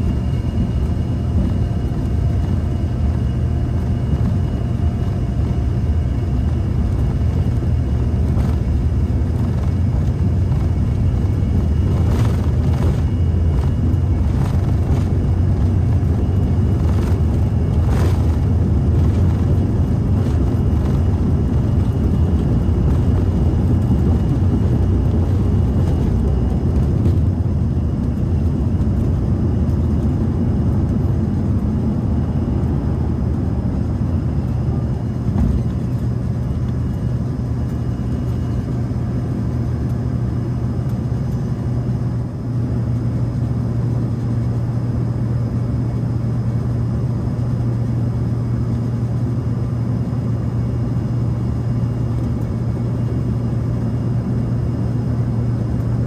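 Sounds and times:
runway rumble: 0.0s - 38.8s
jet engines at takeoff power: 0.0s - 56.0s.

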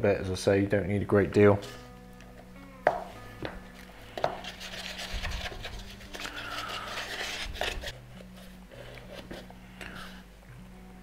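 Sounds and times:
stick scraping paper cup: 4.1s - 10.2s.

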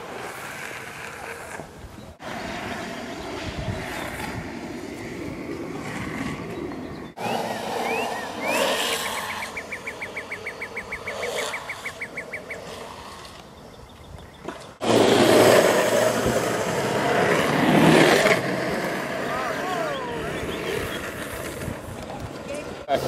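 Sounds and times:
skateboard wheels rolling on asphalt: 0.0s - 23.0s
bird chirping and trilling: 6.3s - 12.8s.

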